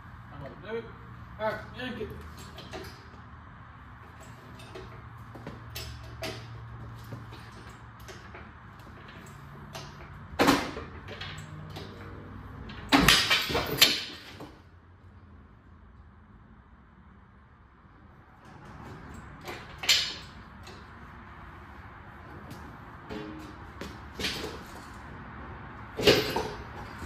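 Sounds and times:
rattling metal clanks: 4.1s - 14.5s, 22.2s - 25.0s, 25.9s - 27.0s.

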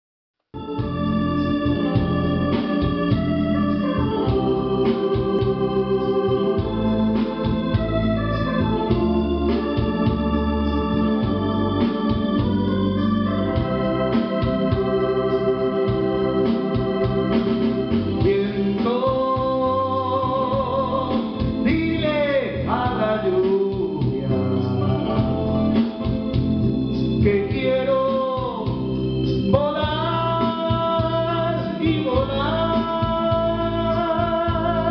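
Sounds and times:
organ chords over low beat: 0.6s - 34.9s
person singing: 18.2s - 26.2s, 27.2s - 34.9s.

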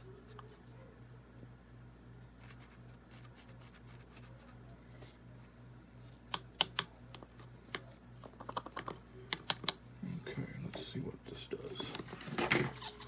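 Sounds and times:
wooden stick clicking on plastic cup: 6.3s - 7.8s, 8.5s - 9.8s.

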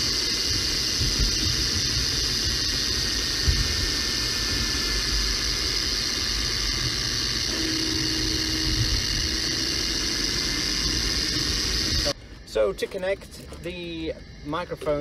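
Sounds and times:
driveline and road rumble: 0.0s - 15.0s
faint differential whine: 0.0s - 15.0s.

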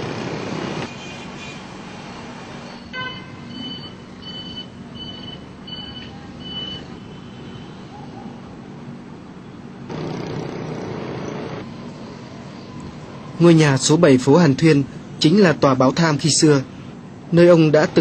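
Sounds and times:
city street traffic: 0.0s - 18.0s
electronic beeper high beeps: 3.5s - 6.8s.

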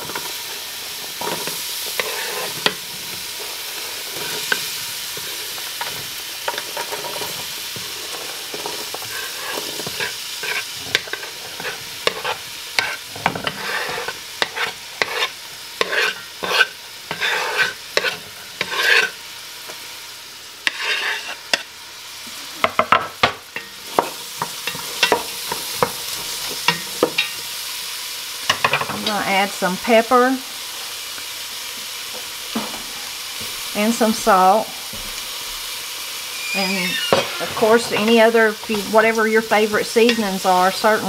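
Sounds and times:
wooden spoon stirring vegetables: 0.0s - 19.8s
vegetables sizzling in hot oil: 0.0s - 41.0s
wooden spatula knocking and scraping: 8.6s - 19.1s.

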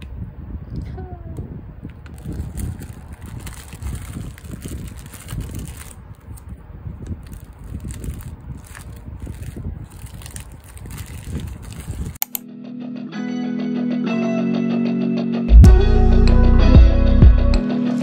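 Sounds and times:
plastic film crinkling: 2.0s - 12.2s.

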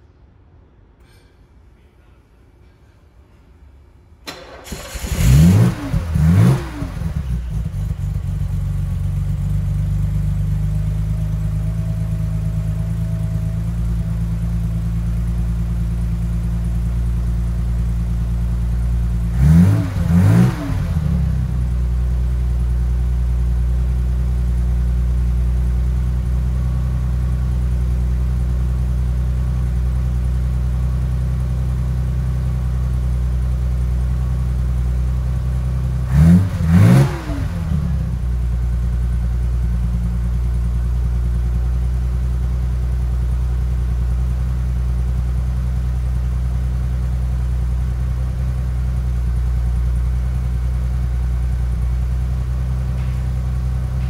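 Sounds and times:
car engine idling: 4.2s - 54.0s
car engine starting: 4.2s - 54.0s
engine revving: 4.3s - 8.2s, 19.3s - 21.5s, 36.0s - 38.2s.

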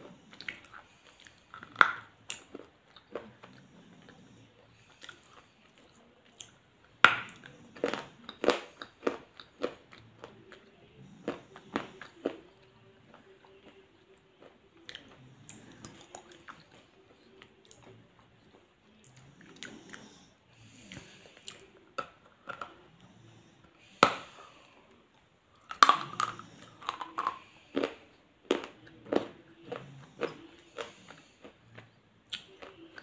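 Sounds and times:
person crunching and chewing food: 0.0s - 23.0s, 25.5s - 33.0s.

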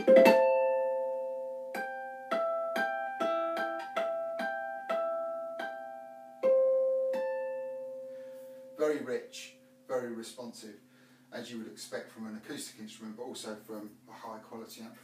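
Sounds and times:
picked ukulele notes: 0.0s - 10.7s.

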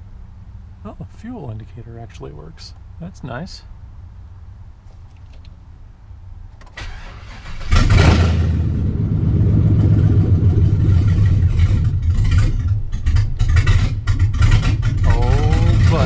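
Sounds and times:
engine starting and running loudly: 6.6s - 16.0s.

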